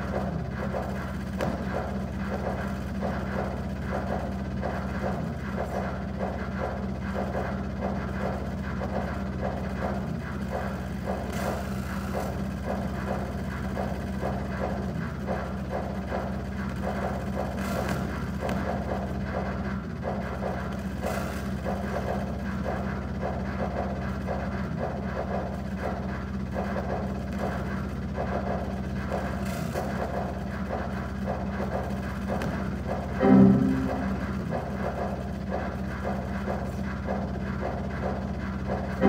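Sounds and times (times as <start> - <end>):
electronic drone with buzzy pulse: 0.0 - 39.0.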